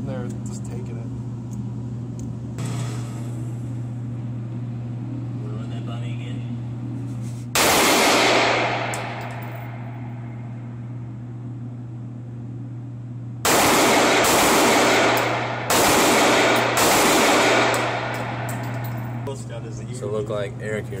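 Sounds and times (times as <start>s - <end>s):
steady low hum: 0.0s - 21.0s
gunshots with echo: 7.6s - 9.2s, 13.5s - 18.8s.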